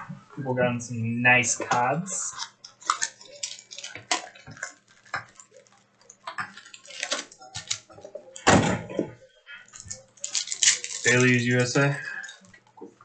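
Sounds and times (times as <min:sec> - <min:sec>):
cards and plastic packaging clicking: 0:02.3 - 0:08.5, 0:09.7 - 0:12.7.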